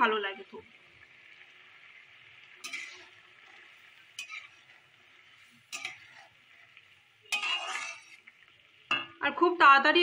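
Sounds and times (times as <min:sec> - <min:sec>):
gravy simmering with bubbling hiss: 0:00.0 - 0:09.9
metal spatula scraping pan: 0:02.5 - 0:08.5.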